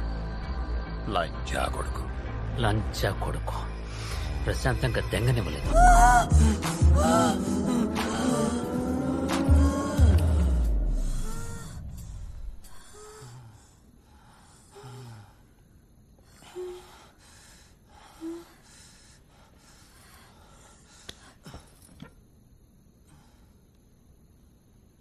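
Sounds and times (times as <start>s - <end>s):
voiced sighs: 5.7s - 15.6s, 16.2s - 21.9s.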